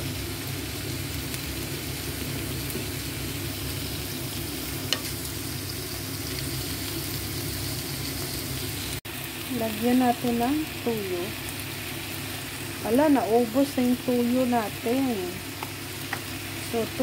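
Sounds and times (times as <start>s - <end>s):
vegetables sizzling in a pan: 0.0s - 17.0s.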